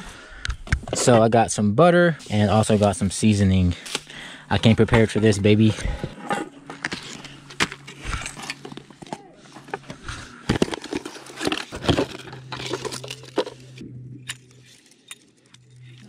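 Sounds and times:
cardboard rustling: 0:03.9 - 0:13.8.

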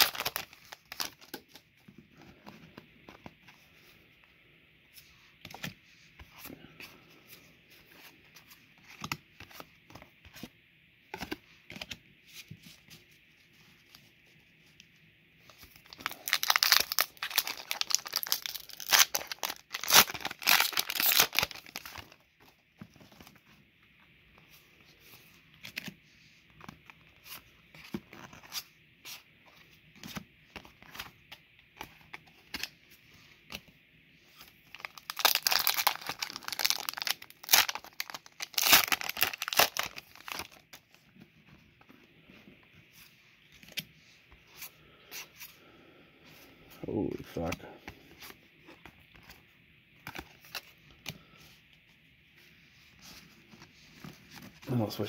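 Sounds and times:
foil wrappers crinkling and tearing: 0:00.0 - 0:01.5, 0:15.8 - 0:22.2, 0:34.7 - 0:40.7.

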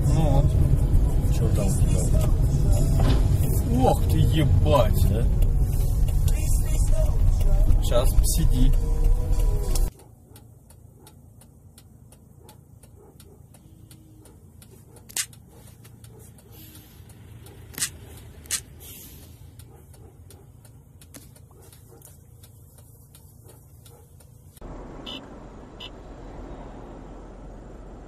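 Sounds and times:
car engine and road hum: 0:00.0 - 0:28.0
hissy road rumble: 0:00.0 - 0:28.0
faint regular ticking: 0:00.6 - 0:25.2
sharp clicks: 0:05.3 - 0:24.5.

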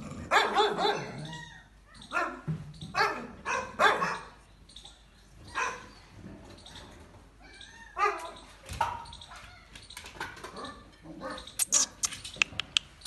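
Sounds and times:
puppies yapping: 0:00.2 - 0:04.4.

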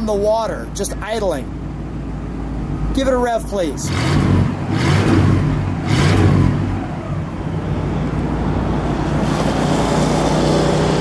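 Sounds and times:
car engine revving and idling: 0:03.7 - 0:11.0.

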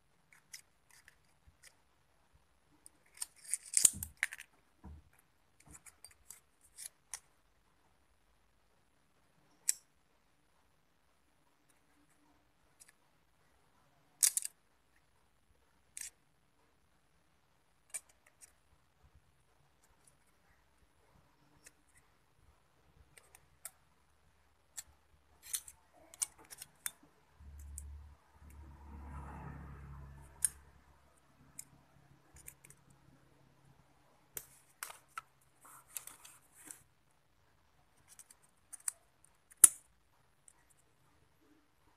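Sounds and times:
scissors snipping plastic: 0:03.0 - 0:04.5.

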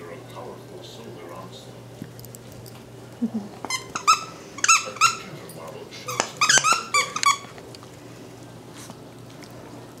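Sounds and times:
squeaky dog toy squeaking: 0:03.7 - 0:05.3, 0:06.1 - 0:07.5.

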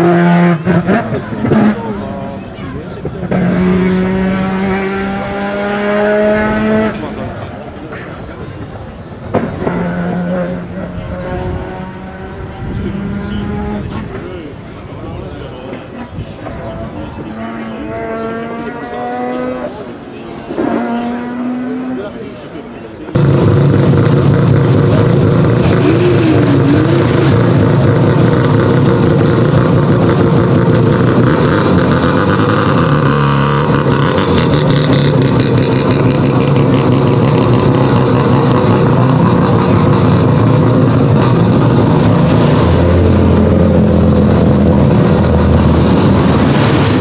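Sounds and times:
other rally car engines: 0:00.0 - 0:47.0
rotary engine running loud: 0:23.2 - 0:47.0.

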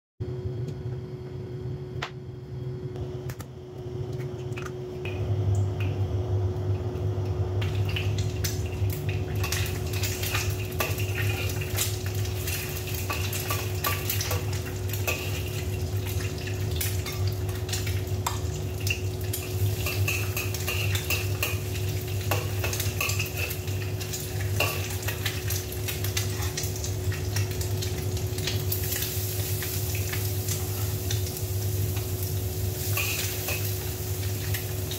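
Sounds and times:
steady low hum: 0:00.2 - 0:34.9
egg sizzling in a wok: 0:07.6 - 0:34.9.

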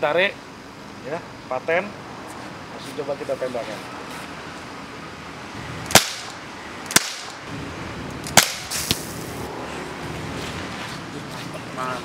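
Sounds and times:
air pistol shots: 0:05.9 - 0:07.4, 0:08.2 - 0:09.1.

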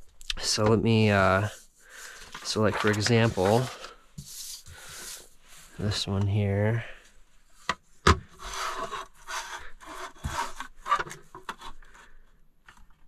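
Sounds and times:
paper sliding on countertop: 0:01.5 - 0:05.6.

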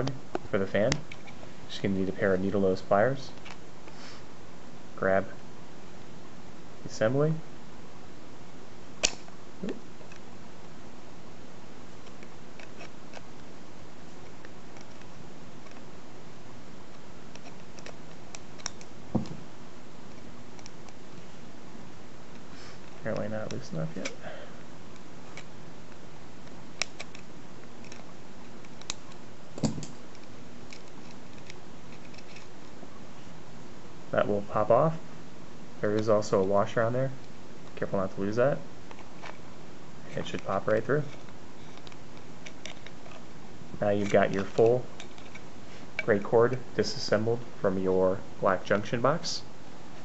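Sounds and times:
faint hiss: 0:00.0 - 0:04.4, 0:22.4 - 0:24.7
steady background hiss: 0:00.0 - 0:50.0
pliers clicking on plastic: 0:26.8 - 0:28.0.

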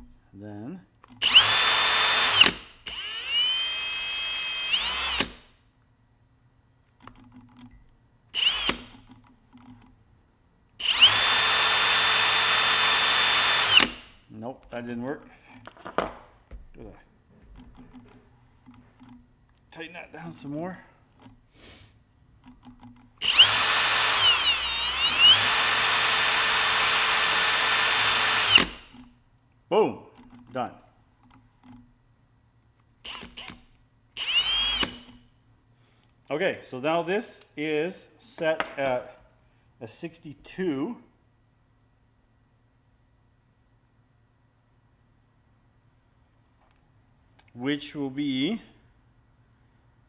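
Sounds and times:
cordless drill drilling brass: 0:01.2 - 0:05.6, 0:08.3 - 0:09.0, 0:10.8 - 0:14.2, 0:22.7 - 0:29.1, 0:33.0 - 0:35.3.

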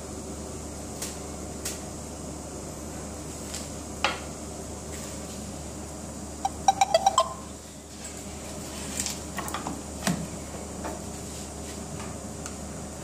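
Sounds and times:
fan hum: 0:00.0 - 0:13.0.

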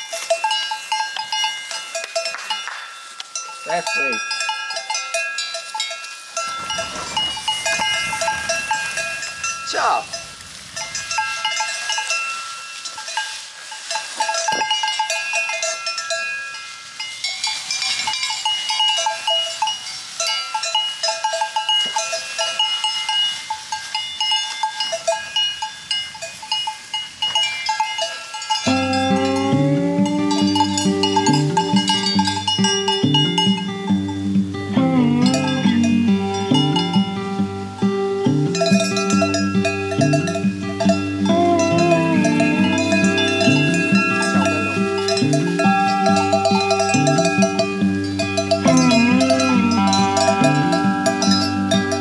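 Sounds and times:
cowbells clanking: 0:00.0 - 0:52.0
acoustic guitar music: 0:06.4 - 0:11.6, 0:28.6 - 0:52.0.

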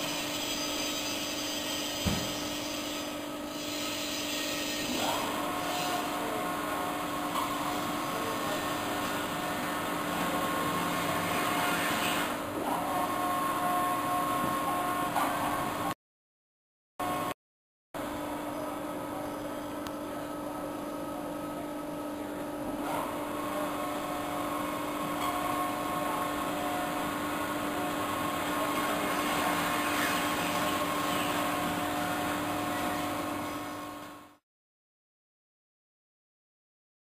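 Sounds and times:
shredder machine whine: 0:23.0 - 0:34.3.

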